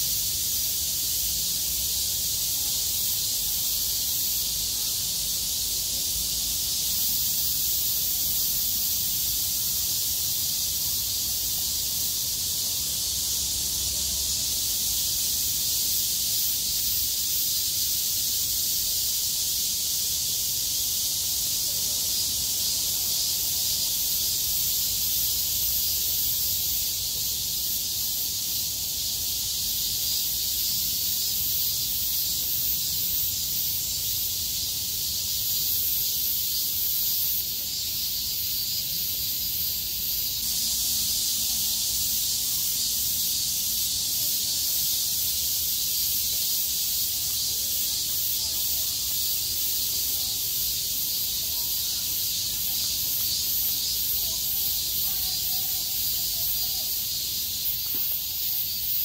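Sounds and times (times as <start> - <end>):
cicadas buzzing: 0.0 - 59.0.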